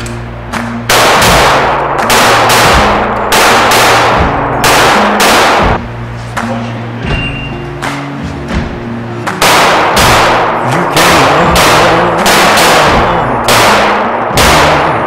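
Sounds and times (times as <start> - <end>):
background music with low notes: 0.0 - 15.0
loud gunshots ringing in a room: 0.8 - 5.9, 9.3 - 15.0.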